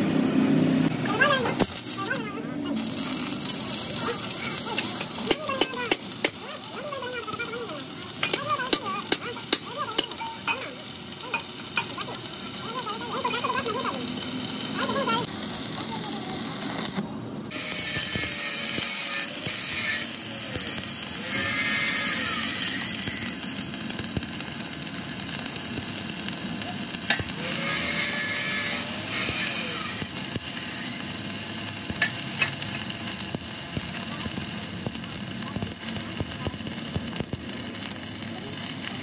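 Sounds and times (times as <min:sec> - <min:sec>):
welding arc: 0:01.0 - 0:39.0.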